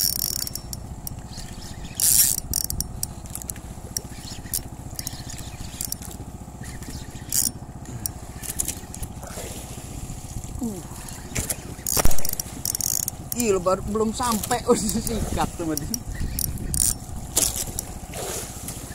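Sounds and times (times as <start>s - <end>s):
fishing reel clicking rapidly: 0.0s - 9.0s, 11.4s - 18.0s
steady low hum: 0.0s - 18.9s.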